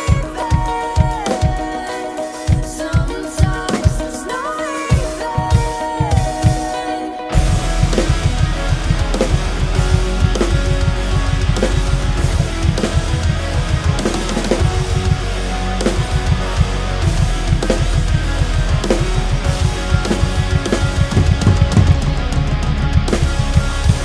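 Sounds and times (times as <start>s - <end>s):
crash and hi-hat cymbals: 0.0s - 24.0s
heavy rock song with guitar: 0.0s - 24.0s
rock drum kit playing: 0.0s - 24.0s
fast kick drum strokes: 4.9s - 6.8s, 7.4s - 15.2s, 16.0s - 24.0s.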